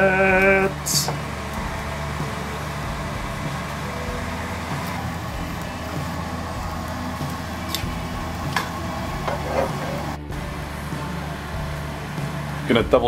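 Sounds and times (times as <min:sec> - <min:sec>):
kitchen background hum: 0:00.0 - 0:13.0
metal tongs clinking on pot: 0:07.6 - 0:07.9.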